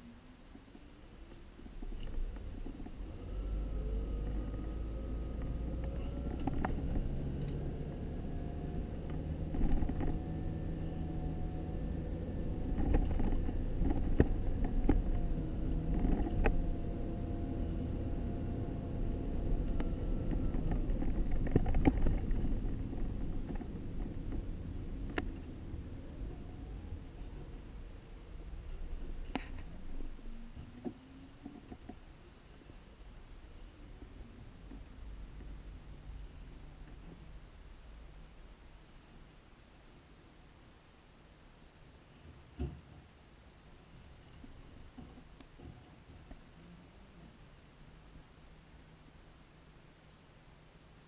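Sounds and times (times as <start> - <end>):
road noise: 0.0 - 40.2
car engine inside cabin: 0.3 - 31.6
car rattling over bumps: 1.3 - 31.9.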